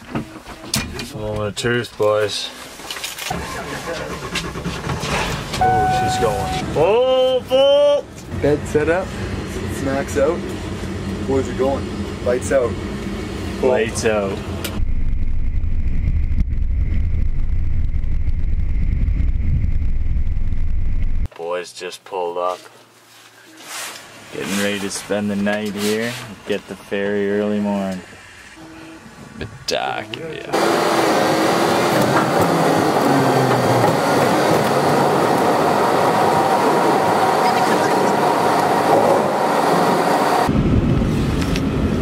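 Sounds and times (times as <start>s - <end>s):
bus engine and road rumble: 0.0s - 21.3s, 29.0s - 42.0s
faint high whine: 5.6s - 6.7s
wind buffeting microphone: 14.5s - 21.3s, 33.6s - 42.0s.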